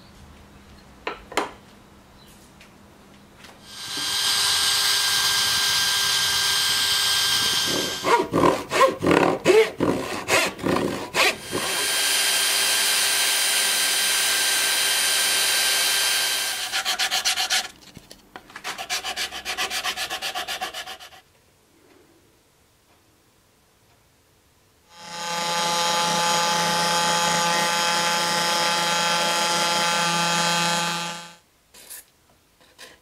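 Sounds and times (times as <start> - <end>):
sanding drum whining: 3.7 - 8.8, 11.2 - 17.6, 24.9 - 31.4
metal scraping bursts: 3.7 - 9.3, 25.0 - 31.4.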